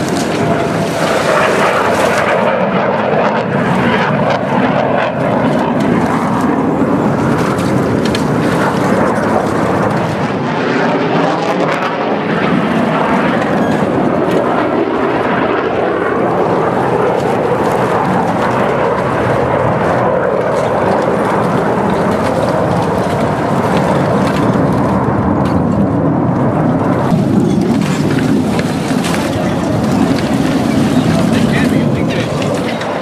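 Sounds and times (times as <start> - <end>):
jet engines flying overhead: 0.0 - 33.0.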